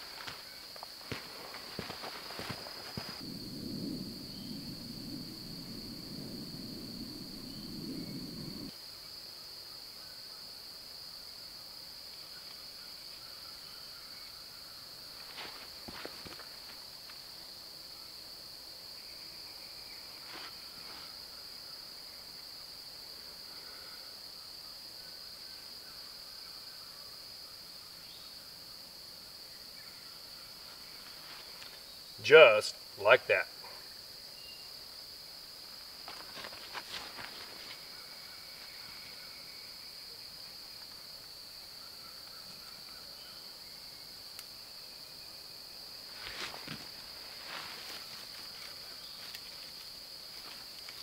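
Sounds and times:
insect chorus drone: 0.0 - 51.0
low rushing noise: 3.2 - 8.7.

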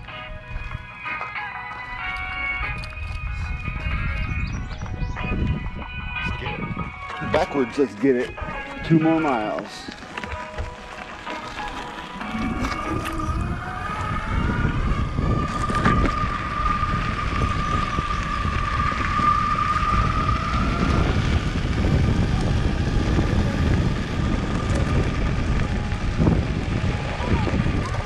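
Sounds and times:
wheels rumbling on gravel: 0.0 - 28.0
wind on microphone: 2.5 - 7.6, 10.2 - 28.0
motor whine: 10.4 - 28.0.

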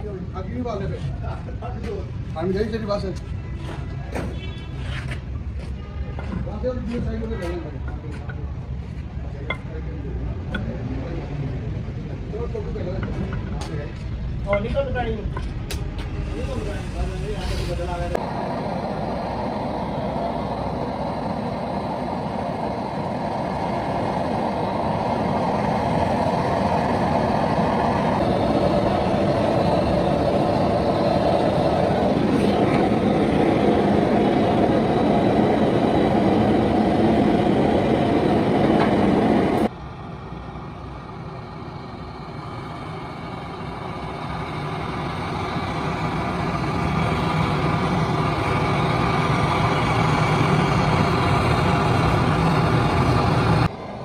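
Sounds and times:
gas torch flame rushing: 15.6 - 39.8, 40.9 - 54.0.

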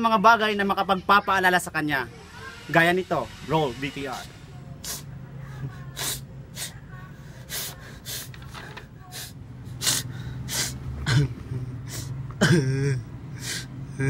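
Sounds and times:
man sobbing: 9.9 - 14.0.

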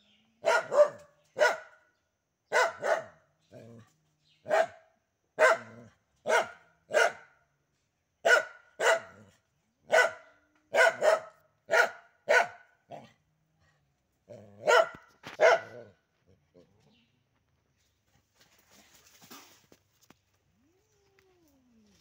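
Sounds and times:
dog barking: 0.4 - 1.8, 2.5 - 3.3, 4.4 - 7.4, 8.2 - 13.1, 14.6 - 16.0.

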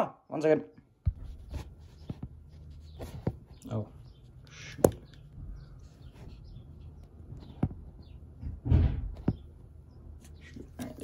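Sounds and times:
thump: 8.4 - 9.4.

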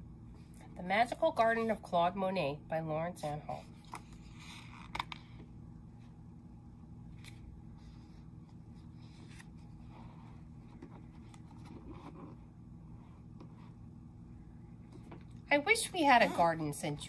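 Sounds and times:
steady low hum: 0.0 - 17.0
paper page rustling: 7.2 - 12.4.

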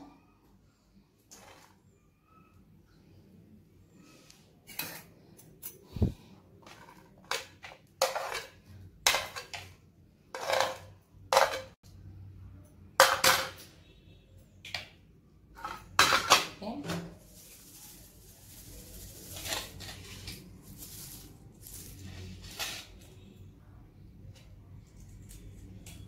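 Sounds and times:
spoon clattering on plastic plates: 6.6 - 9.8, 10.4 - 11.8, 13.0 - 13.6, 15.6 - 16.6.

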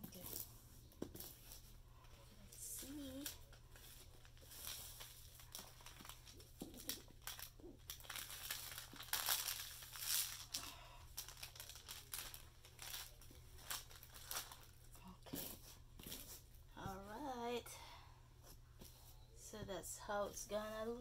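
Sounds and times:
plastic film crinkling: 0.0 - 16.5.

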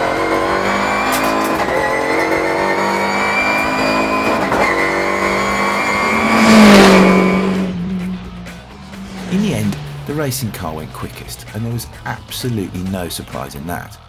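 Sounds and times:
race car passing by: 0.0 - 12.5
race car engine at full throttle: 0.0 - 13.6.

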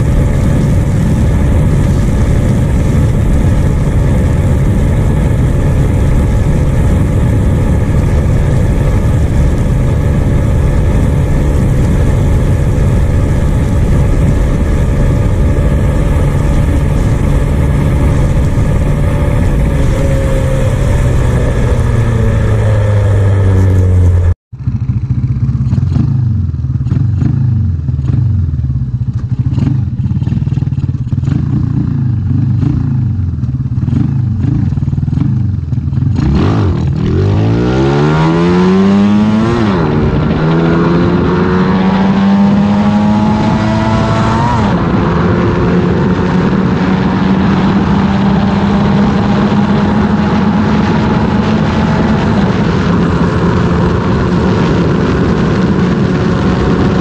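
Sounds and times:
wind rush: 0.0 - 24.4, 36.3 - 57.0
motorcycle engine revving: 0.0 - 57.0.

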